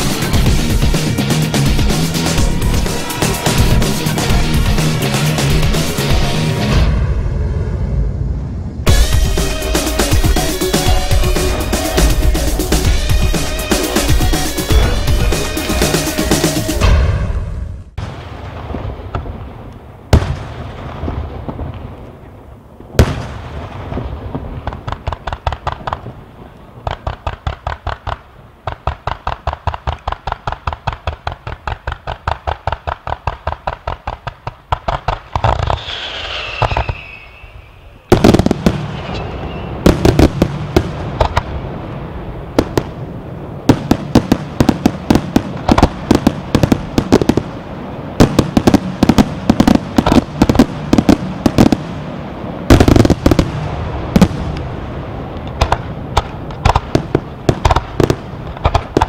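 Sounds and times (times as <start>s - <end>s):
firework reports: 0.0s - 59.0s
firework bangs: 8.8s - 59.0s
falling firework whistle: 35.4s - 40.2s.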